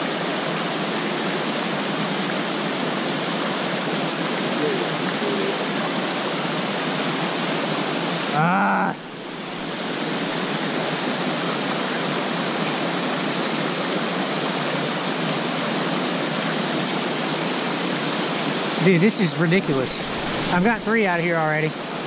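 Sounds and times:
stream running over rocks: 0.0s - 22.0s
waterfall rushing: 0.0s - 22.0s
brief voice exclamation: 8.3s - 9.0s.

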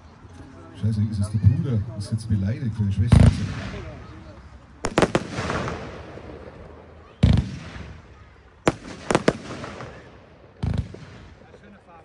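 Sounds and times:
deep firework bangs: 3.1s - 4.1s, 4.8s - 11.6s
sharp firework cracks: 4.8s - 11.6s.

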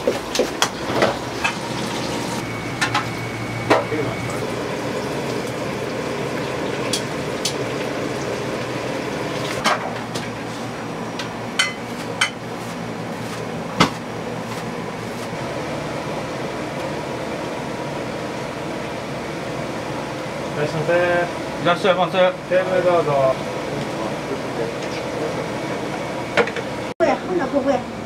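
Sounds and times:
restaurant kitchen hum: 0.0s - 28.0s
utensils and dishes clinking: 6.7s - 7.7s, 11.2s - 12.5s.

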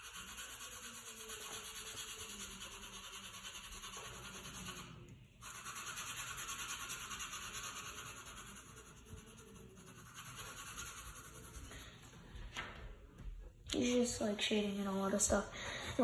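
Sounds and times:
pencil strokes scratching on paper: 0.0s - 12.2s.

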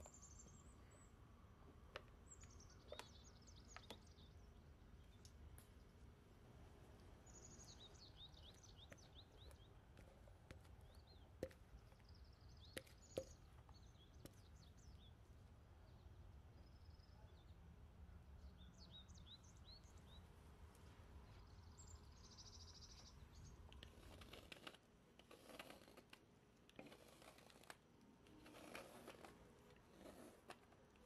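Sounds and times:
faint birds chirping: 0.0s - 31.0s.

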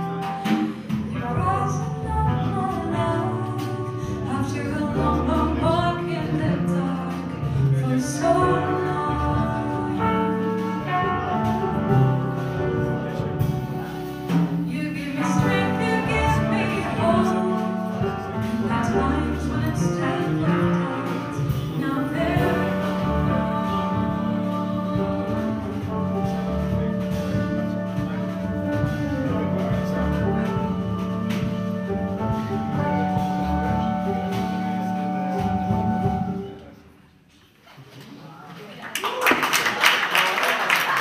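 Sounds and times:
woman singing: 0.0s - 11.0s, 14.7s - 26.2s
jazz band playing: 0.0s - 37.3s.

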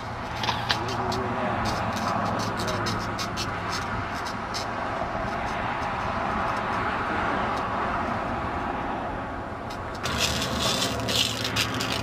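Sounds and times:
electrical arcing hiss: 10.0s - 12.0s
electrical crackling: 10.0s - 12.0s.

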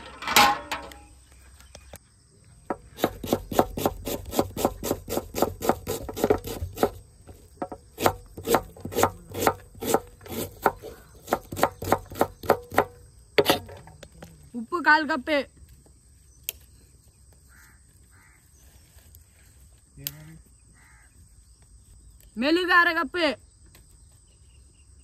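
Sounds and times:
knife chopping on wooden board: 2.7s - 7.0s, 7.6s - 13.6s.

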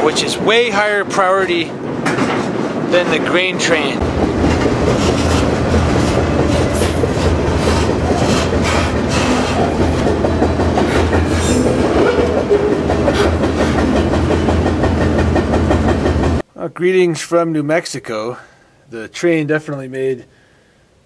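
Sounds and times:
train low rumble: 0.0s - 16.5s.

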